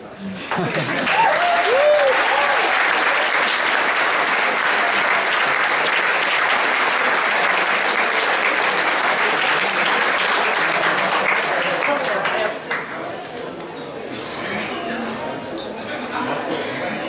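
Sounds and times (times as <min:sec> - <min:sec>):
audience applauding: 0:00.5 - 0:13.1.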